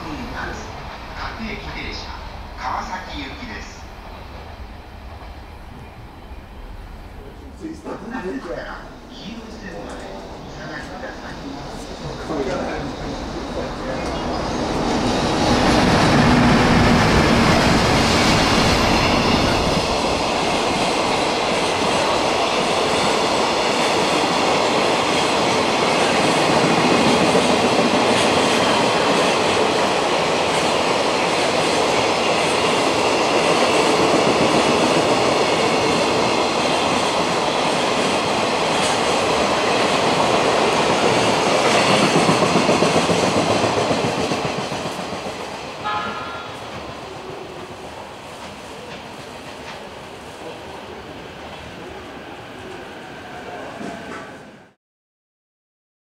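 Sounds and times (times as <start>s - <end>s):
electric locomotive passing: 0.0s - 54.8s
train wheels running over rails: 9.8s - 50.4s.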